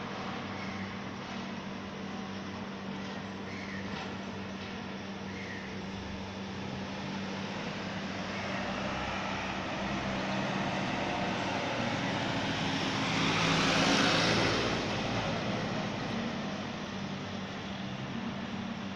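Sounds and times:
vehicle passing by: 7.0s - 17.2s.

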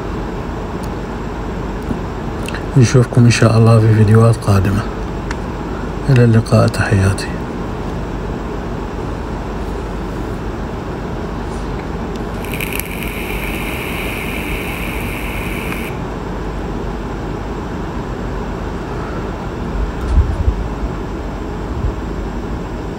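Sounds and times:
low background noise: 0.0s - 20.0s
high hiss: 12.3s - 16.1s.

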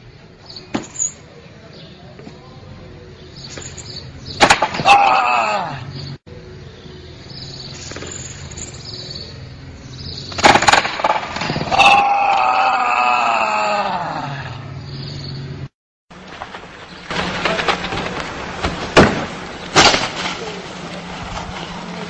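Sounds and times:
clattering crash of falling: 4.4s - 5.0s, 16.2s - 21.0s
person crying out: 4.8s - 5.9s, 11.7s - 14.6s.

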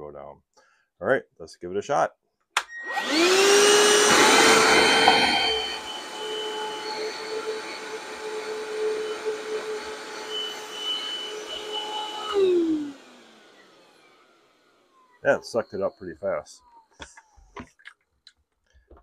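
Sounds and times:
vacuum motor spinning down: 2.7s - 16.9s
wet dry vacuum motor whine: 2.7s - 16.9s.

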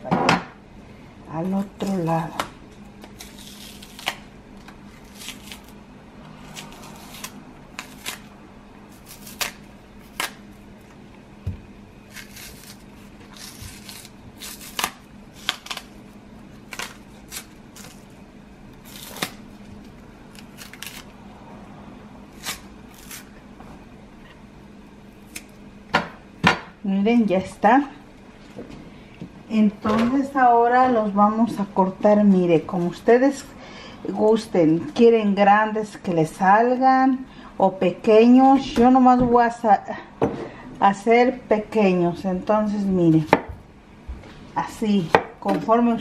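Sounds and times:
faint steady hum: 0.0s - 46.0s
plantain peel snapping: 9.0s - 10.4s, 20.3s - 21.1s, 25.2s - 25.6s.

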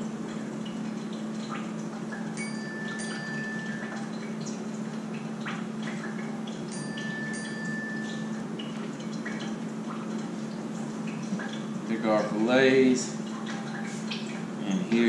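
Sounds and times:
steady low hum: 0.0s - 15.0s
chime-like notes: 2.4s - 4.1s, 6.7s - 8.4s.

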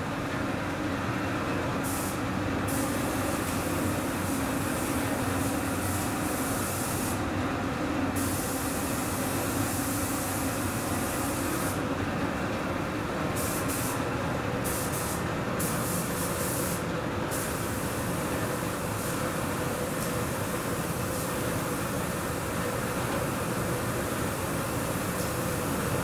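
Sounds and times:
spray gun hissing: 1.8s - 7.3s, 8.2s - 11.8s, 13.4s - 14.0s, 14.6s - 18.1s.

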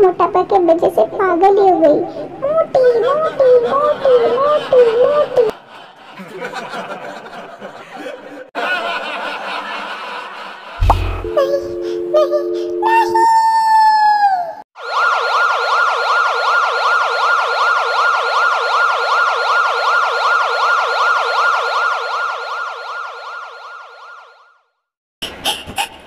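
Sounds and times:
ambulance siren yelp: 11.2s - 24.5s.

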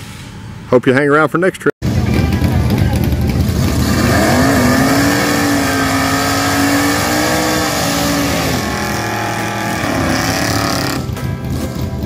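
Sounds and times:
engine revving: 1.9s - 12.0s
spinning tyres hissing: 3.6s - 11.2s.

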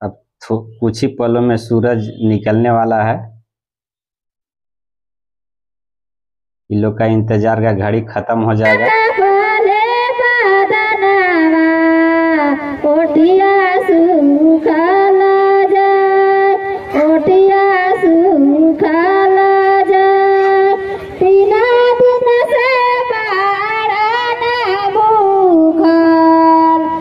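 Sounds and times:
woman singing devotional song: 8.7s - 27.0s.

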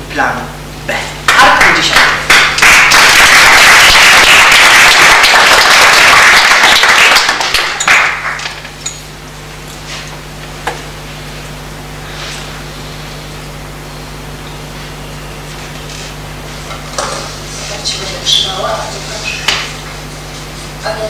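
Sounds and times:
steady low hum: 0.0s - 21.0s
audience applauding: 1.3s - 8.6s.

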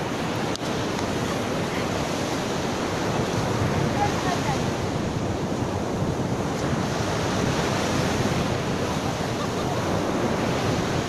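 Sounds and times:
ocean surf breaking: 0.0s - 11.0s
wind buffeting microphone: 0.0s - 11.0s.

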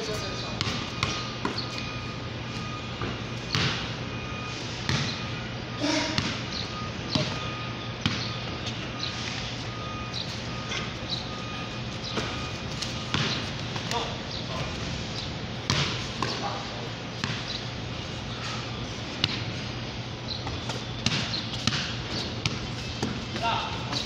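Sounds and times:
distant voices: 0.0s - 24.0s
basketball bouncing on concrete: 0.1s - 1.9s, 3.0s - 4.0s, 4.9s - 5.3s, 6.1s - 7.4s, 8.0s - 8.4s, 12.0s - 14.8s, 15.6s - 17.7s, 19.2s - 19.6s, 20.4s - 24.0s.

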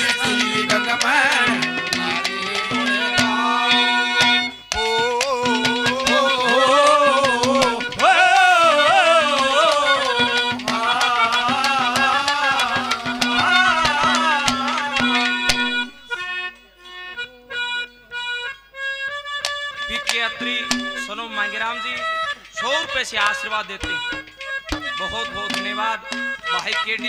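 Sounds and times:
bending folk melody: 0.0s - 27.0s
drum strokes: 4.2s - 16.0s, 20.0s - 27.0s.

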